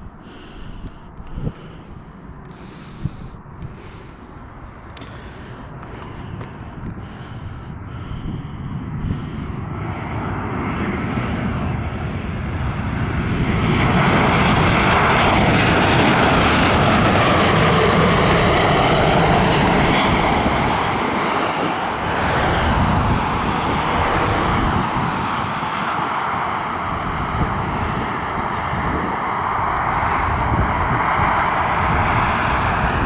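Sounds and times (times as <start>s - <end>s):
jet engines landing overhead: 0.0s - 33.0s.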